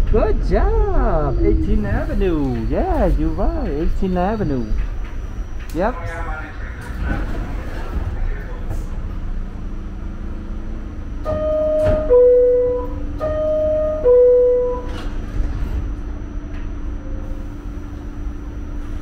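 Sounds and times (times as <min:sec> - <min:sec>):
train humming: 0:00.0 - 0:19.0
two-note door chime: 0:11.3 - 0:15.0.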